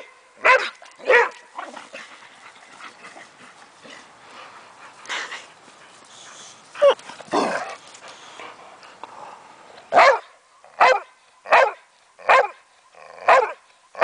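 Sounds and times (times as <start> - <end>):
dog barking: 0.0 - 1.4, 9.9 - 12.6, 13.2 - 13.6.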